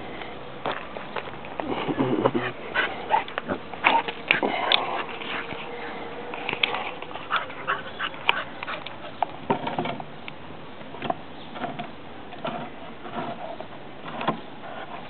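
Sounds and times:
dogs whining softly: 1.9 - 9.2.

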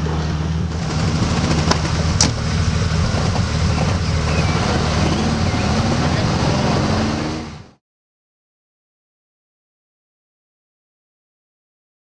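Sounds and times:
car engine rumbling at low revs: 0.0 - 7.8.

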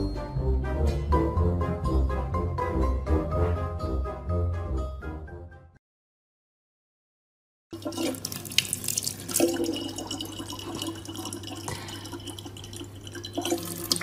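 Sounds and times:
water running from a tap: 7.8 - 14.0.

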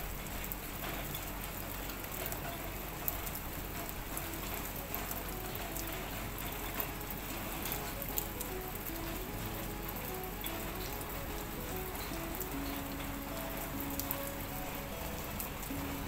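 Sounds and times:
sharp taps of raindrops: 0.0 - 16.0
steady rain on plants: 0.0 - 16.0.

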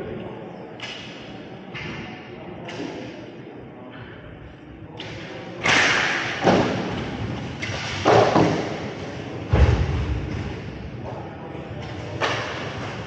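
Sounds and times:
hard echoing knocks: 5.1 - 11.0.

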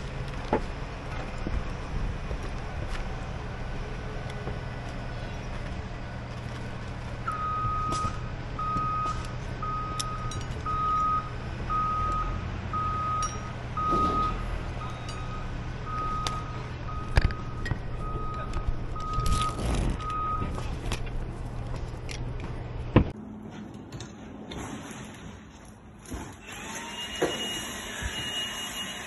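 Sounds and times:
truck engine rumble: 0.0 - 26.1
truck back-up alarm beeping: 7.2 - 20.7, 26.9 - 29.0.

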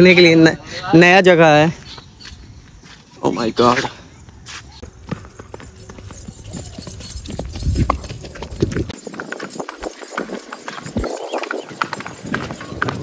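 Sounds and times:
horse hooves on pavement: 4.8 - 13.0.

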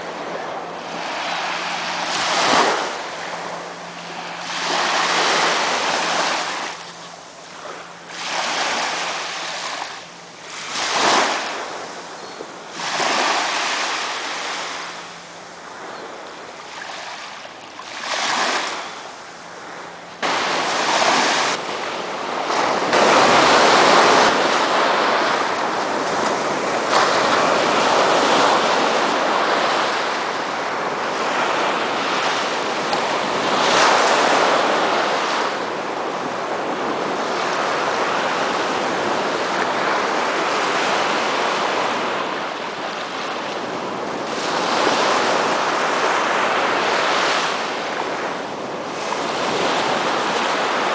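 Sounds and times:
small waves washing on shore: 0.0 - 50.9
surf rushing: 0.0 - 50.9
wind: 0.0 - 50.9.

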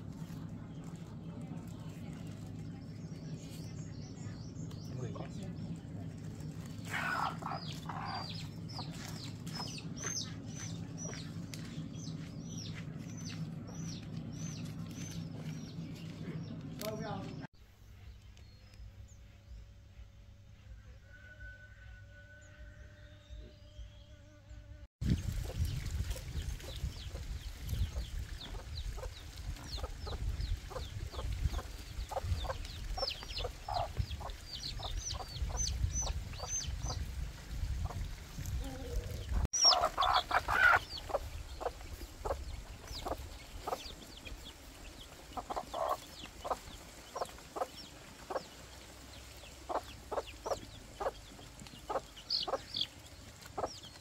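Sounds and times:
low rumble: 0.0 - 21.0, 25.0 - 54.0
chicks peeping: 0.2 - 17.5, 25.0 - 54.0
chickens clucking: 4.7 - 17.4, 25.2 - 37.1, 37.8 - 54.0
loud chicken call: 39.6 - 40.8.

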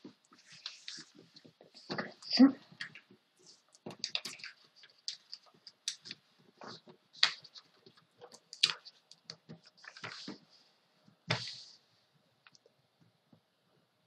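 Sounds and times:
paper rustling: 0.3 - 2.1, 3.4 - 10.6.

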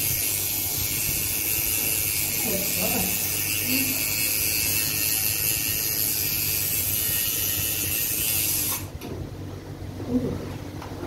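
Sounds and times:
tattoo machine buzzing: 0.0 - 8.9.

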